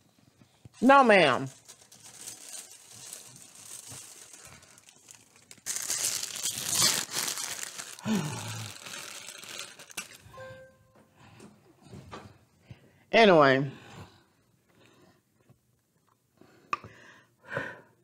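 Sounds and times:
paper towel tearing and crumpling: 0:00.8 - 0:10.3
vocal grunt: 0:08.0 - 0:08.8.

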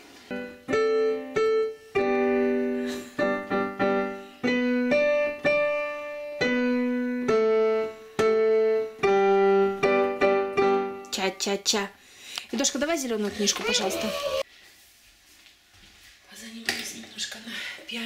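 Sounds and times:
digital piano slow melody: 0:00.0 - 0:11.1.

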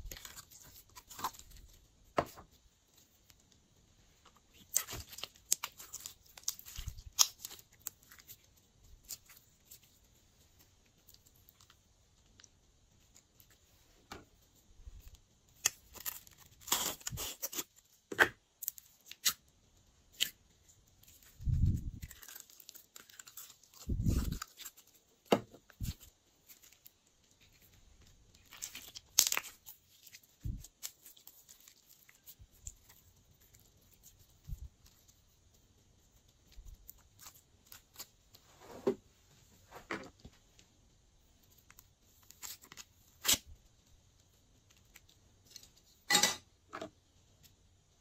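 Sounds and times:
slime crackling and snapping: 0:04.5 - 0:08.4, 0:28.4 - 0:33.0.

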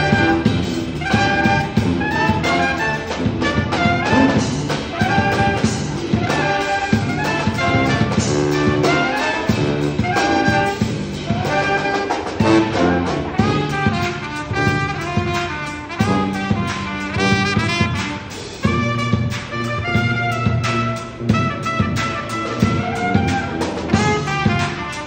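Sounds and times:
low bass line: 0:00.0 - 0:15.3, 0:18.6 - 0:24.6
drum kit with cymbals: 0:00.0 - 0:25.0
saxophone: 0:00.0 - 0:25.0
trumpets: 0:00.0 - 0:25.0.

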